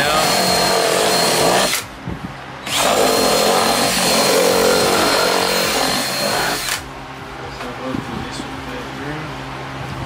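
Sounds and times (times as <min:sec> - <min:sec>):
cordless drill whining: 0:00.0 - 0:01.9, 0:02.6 - 0:06.8.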